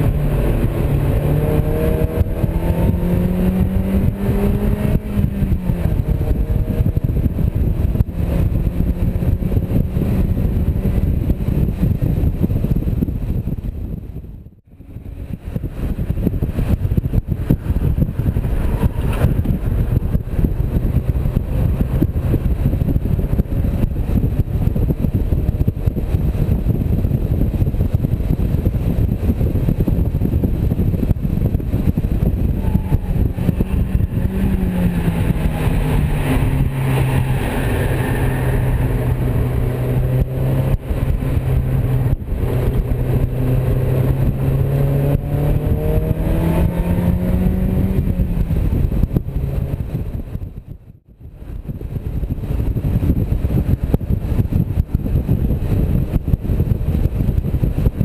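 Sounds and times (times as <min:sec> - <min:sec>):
car engine droning: 0:00.0 - 0:57.8
wind rush: 0:00.0 - 0:58.0.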